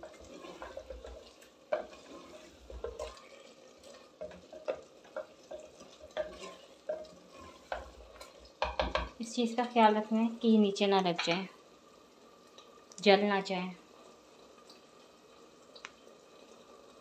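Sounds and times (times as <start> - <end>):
wooden spoon stirring thick curry: 0.0 - 9.2
curry frying in oil: 0.0 - 17.0
spoon knocking against pot: 8.6 - 9.2.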